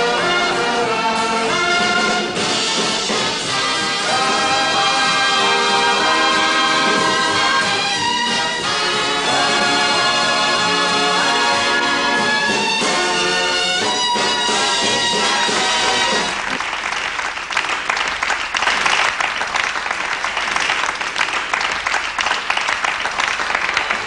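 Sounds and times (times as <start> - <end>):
orchestra with brass playing: 0.0 - 17.0
audience applauding: 0.0 - 24.0.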